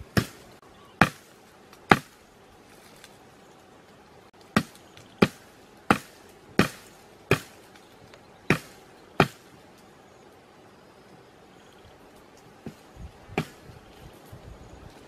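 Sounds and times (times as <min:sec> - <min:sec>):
blade chopping sapling: 0:00.0 - 0:02.2, 0:04.4 - 0:07.8, 0:08.4 - 0:09.5, 0:12.6 - 0:13.7.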